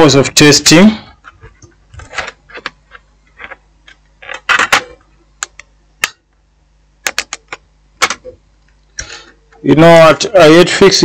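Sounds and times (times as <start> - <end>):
plastic clicks: 1.6 - 6.2, 7.0 - 9.1.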